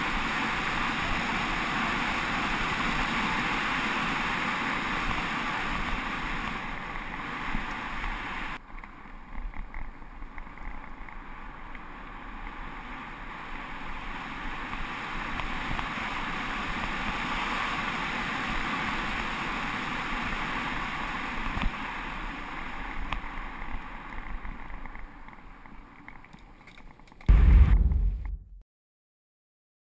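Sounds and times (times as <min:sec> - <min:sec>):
wind rushing over camera: 0:27.3 - 0:28.6.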